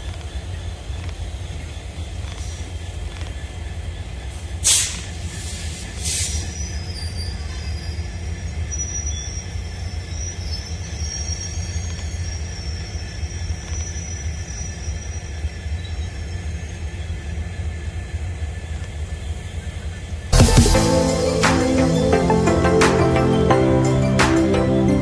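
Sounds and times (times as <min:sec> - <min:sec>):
train wheels rumbling on track: 0:00.0 - 0:20.4
high wheel squeal: 0:04.0 - 0:20.1.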